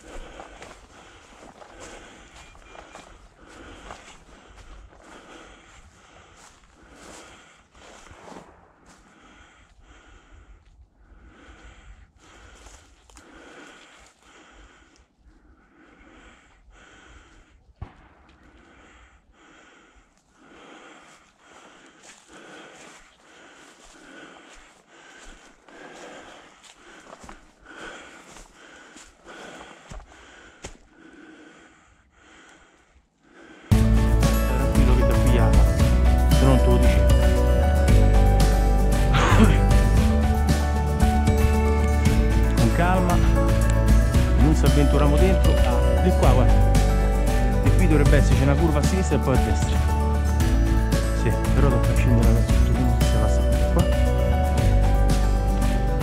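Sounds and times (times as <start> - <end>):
person breathing heavily: 0.0 - 56.0
twigs snapping in dry grass: 12.6 - 14.3.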